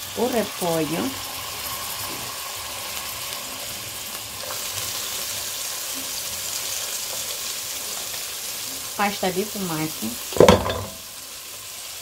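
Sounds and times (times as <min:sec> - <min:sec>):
oil sizzling in a pot: 0:00.0 - 0:12.0
cabbage dropped into pot: 0:10.4 - 0:11.0.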